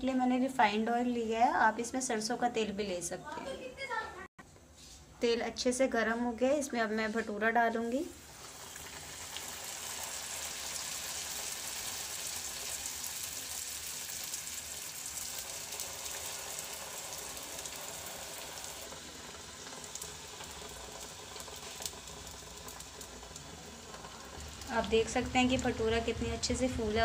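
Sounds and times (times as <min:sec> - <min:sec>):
dough sizzling in hot oil: 0:08.0 - 0:27.0.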